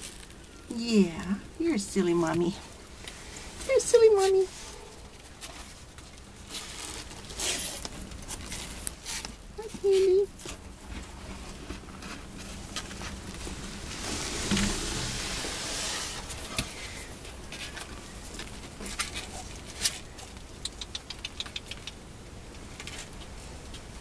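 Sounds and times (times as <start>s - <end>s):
rustling against cardboard: 2.2s - 20.6s
sharp clicks: 20.6s - 22.0s.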